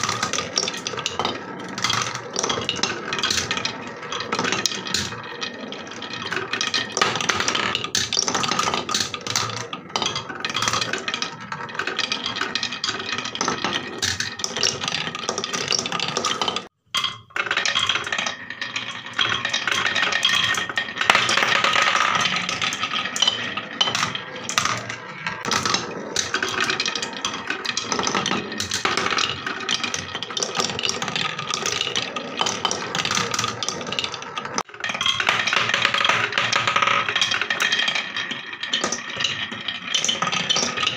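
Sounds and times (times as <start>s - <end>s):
marbles rattling down wooden track: 0.0s - 40.9s.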